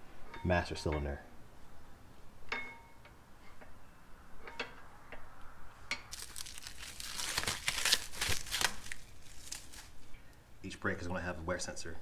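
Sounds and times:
plastic wrapping crinkling and tearing: 0:06.1 - 0:10.1.

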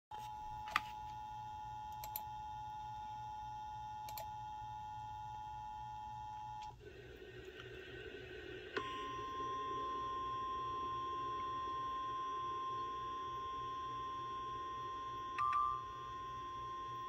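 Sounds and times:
click: 0:01.9 - 0:02.3, 0:04.0 - 0:04.3.

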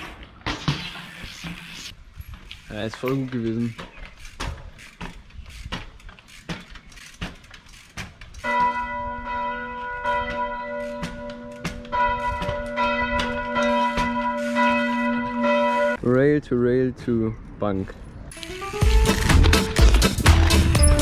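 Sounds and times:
church bells ringing: 0:08.4 - 0:16.0.

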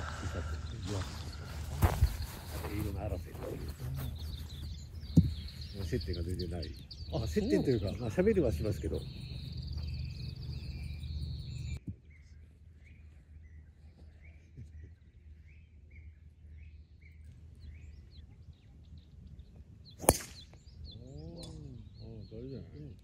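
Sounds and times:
birds chirping faintly: 0:00.0 - 0:23.0
golf club striking ball: 0:20.0 - 0:20.4.

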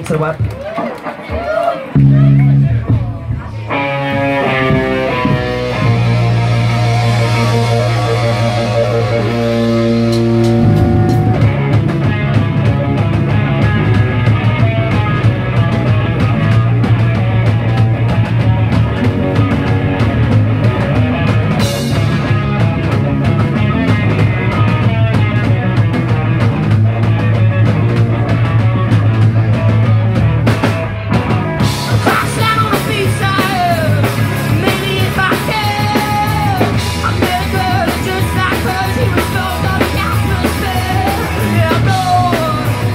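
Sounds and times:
rock band playing live: 0:00.0 - 0:42.9
electric guitar lead with bending notes: 0:01.9 - 0:42.9.

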